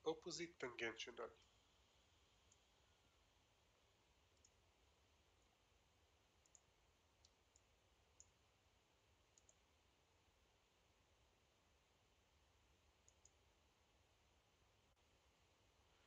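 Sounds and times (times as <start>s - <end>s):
computer mouse clicks: 4.3s - 4.6s, 6.4s - 8.4s, 9.3s - 9.6s, 13.0s - 13.4s.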